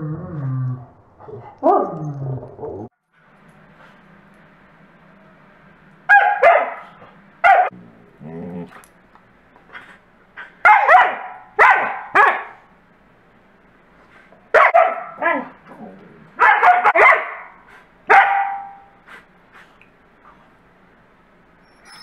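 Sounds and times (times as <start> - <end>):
dogs barking and yowling: 6.1 - 7.8, 10.6 - 12.7, 14.5 - 15.7, 16.3 - 19.0.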